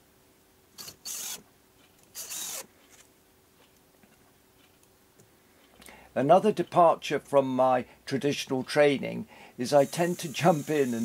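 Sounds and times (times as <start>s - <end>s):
impact driver driving screws: 0.8s - 1.4s, 2.1s - 2.7s.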